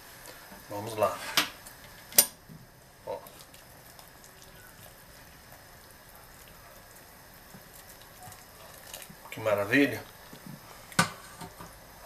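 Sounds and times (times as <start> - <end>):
water pouring into a pot: 3.0 - 11.0.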